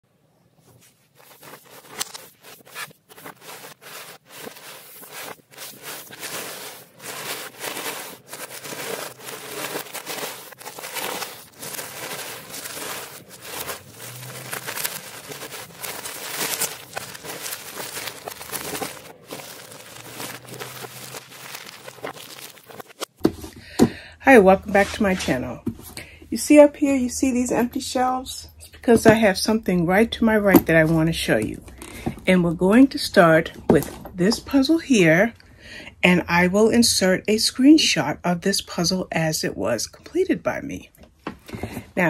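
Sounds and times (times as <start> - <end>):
jigsaw pieces clattering: 1.2 - 23.1.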